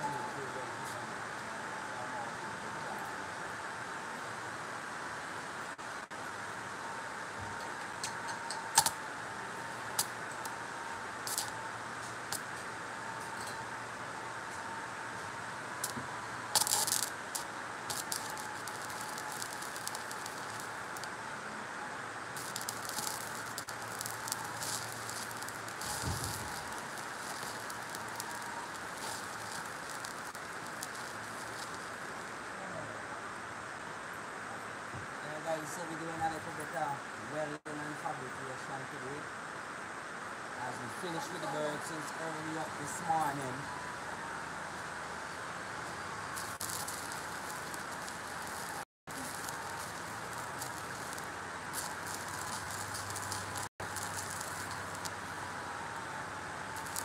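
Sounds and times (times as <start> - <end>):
welding arc crackling and popping: 6.1 - 32.4, 40.6 - 57.0.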